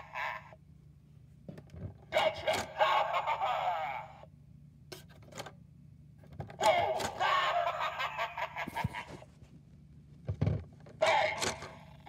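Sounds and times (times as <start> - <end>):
spooky voice-like sound effect: 0.0 - 0.6, 2.1 - 4.3, 6.6 - 9.2, 11.0 - 12.0.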